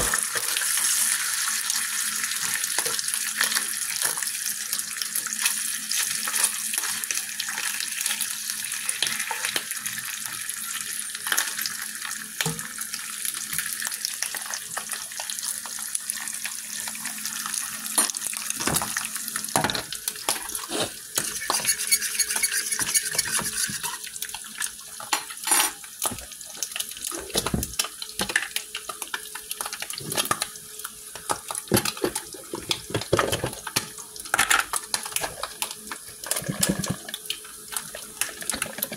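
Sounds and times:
bacon frying hiss and crackles: 0.0s - 38.9s
pots knocking and clicking: 19.6s - 24.0s, 31.2s - 33.8s, 36.2s - 37.2s.

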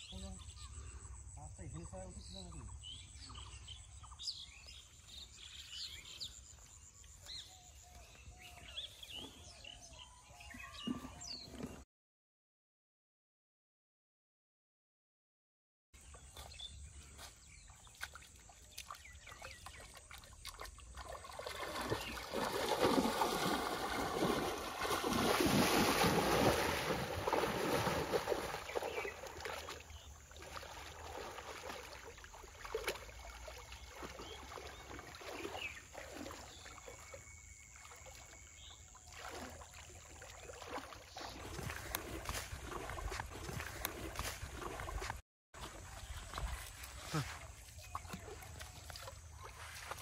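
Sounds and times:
person wading through water: 16.0s - 50.0s
hands sloshing in water: 16.2s - 50.0s.

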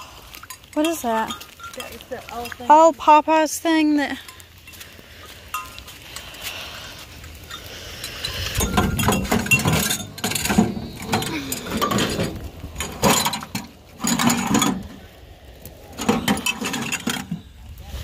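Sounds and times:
wind chime tubes clinking: 0.1s - 2.9s, 4.1s - 4.8s, 5.4s - 6.4s, 7.3s - 12.1s.

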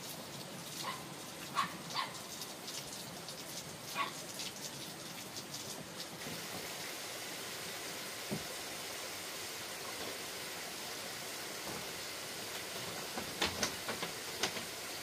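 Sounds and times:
dog barking: 0.8s - 2.2s, 3.9s - 4.2s
steady background hiss: 4.7s - 15.0s.

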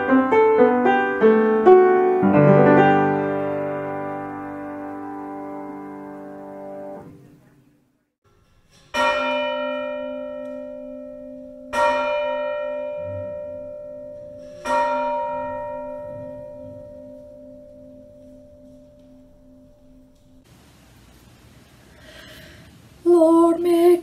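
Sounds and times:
church bell tolling: 8.9s - 20.4s.

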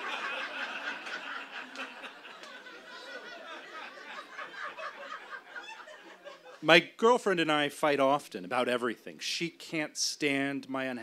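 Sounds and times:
audience laughing: 0.0s - 6.6s.

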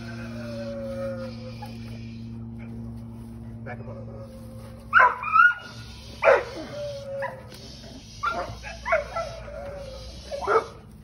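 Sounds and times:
dog whining: 0.0s - 2.0s, 4.5s - 7.6s, 8.2s - 10.8s
dog barking: 4.9s - 6.7s, 10.4s - 10.8s.

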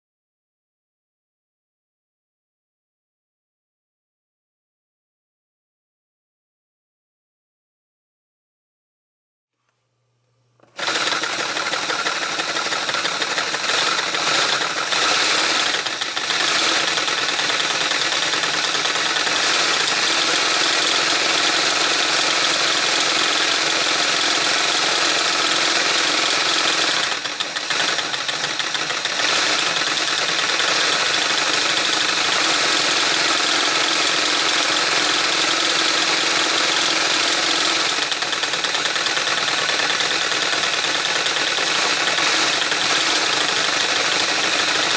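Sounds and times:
toy engine whirring clatter: 10.6s - 44.9s.

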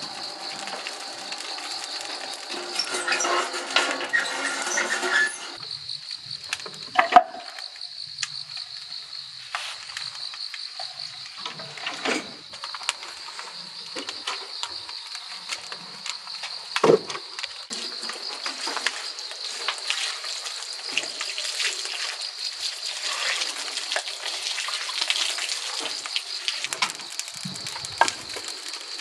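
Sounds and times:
crickets chirping: 0.0s - 29.0s
wood fire crackling: 0.0s - 29.0s
firebox door sliding shut: 1.9s - 5.6s.

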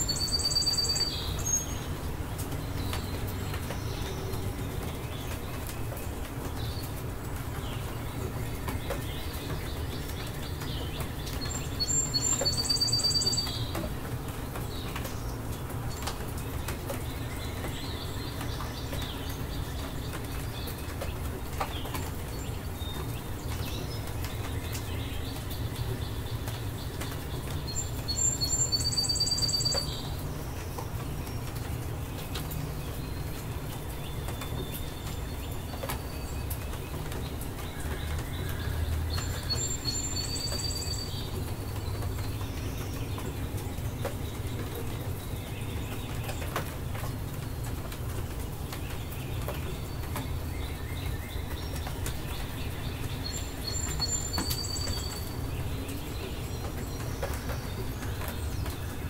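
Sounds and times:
bird singing with trill: 0.0s - 2.0s, 8.8s - 13.8s, 26.0s - 30.2s, 37.6s - 46.4s, 49.2s - 58.8s.

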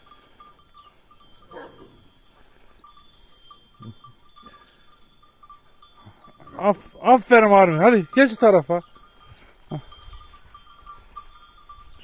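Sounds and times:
cow bells clinking faintly: 0.0s - 12.0s.

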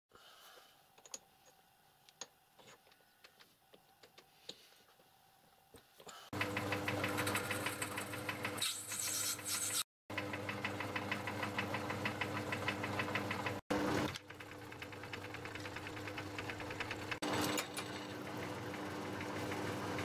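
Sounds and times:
lathe motor hum: 10.1s - 20.0s.

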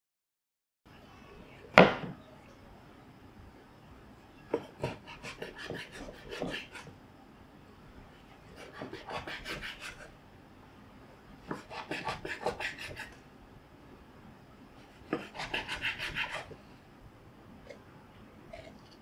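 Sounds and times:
knife sawing through fish: 8.6s - 10.1s, 11.5s - 13.2s, 15.0s - 16.5s.

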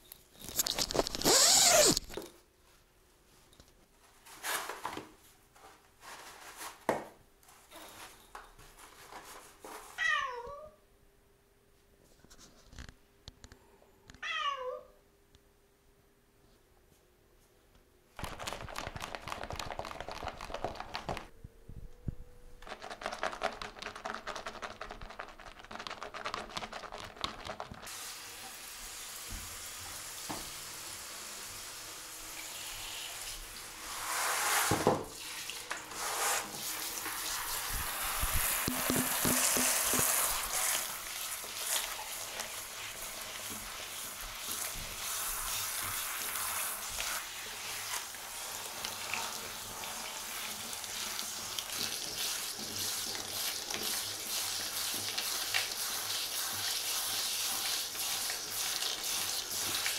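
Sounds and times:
shower spray splashing: 27.9s - 59.9s.

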